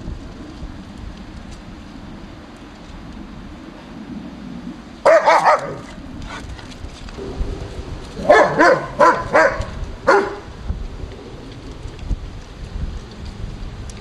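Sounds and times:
puppy barking high-pitched: 5.1 - 5.9, 8.2 - 10.4.

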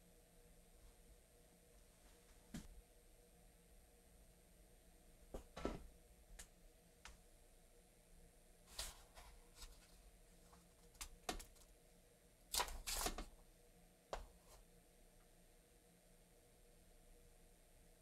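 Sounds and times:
paper pad pages rustling: 8.7 - 10.0, 12.6 - 13.3.

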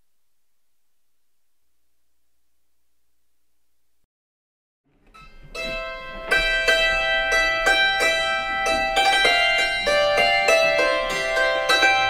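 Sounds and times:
hammered dulcimer playing a tune: 5.1 - 12.0.

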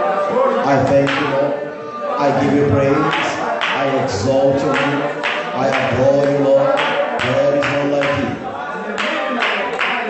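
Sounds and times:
congregation singing: 0.0 - 10.0
hand clapping: 1.0 - 1.3, 3.0 - 10.0.

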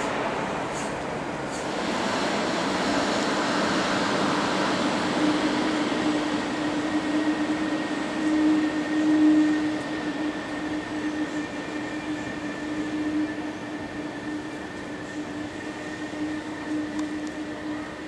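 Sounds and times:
electric train rumbling: 0.0 - 18.0.

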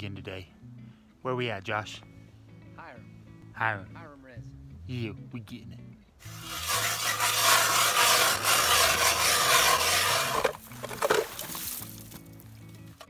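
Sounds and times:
ice auger grinding through ice: 6.3 - 11.7.

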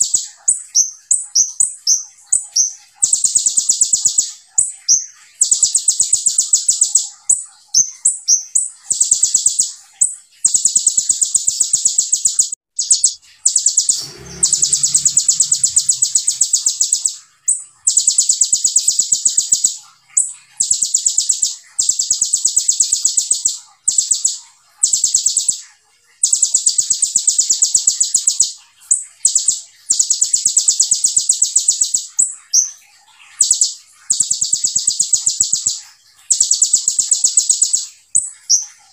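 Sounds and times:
bird chirps: 0.0 - 38.9
sunbird singing high-pitched trills: 0.0 - 38.9.

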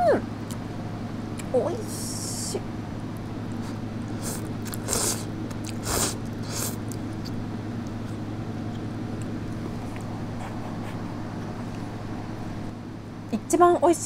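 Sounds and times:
steady low hum: 0.0 - 14.0
person slurping noodles: 4.2 - 6.8.

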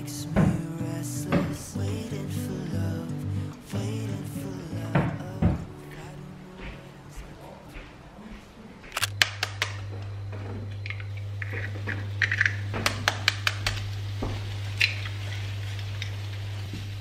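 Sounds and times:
eggshells cracking: 10.9 - 13.9
egg sizzling in hot oil: 12.2 - 17.0.

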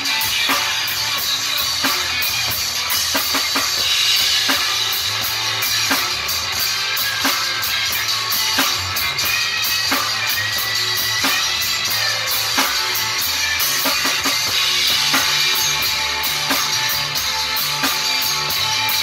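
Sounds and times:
bass drum: 0.0 - 19.0
blues song: 0.0 - 19.0
cymbals: 0.0 - 19.0.

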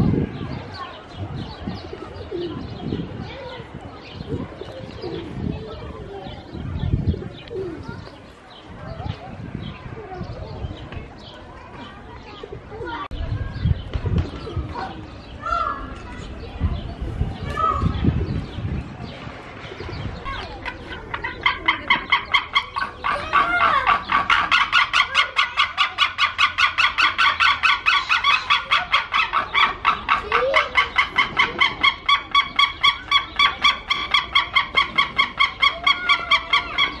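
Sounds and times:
eagles calling: 20.4 - 37.0.

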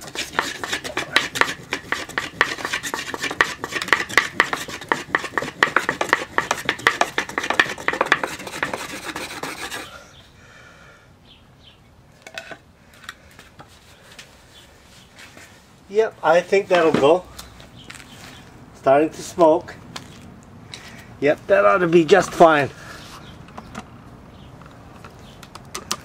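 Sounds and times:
wood scraping on wood: 0.0 - 10.0.

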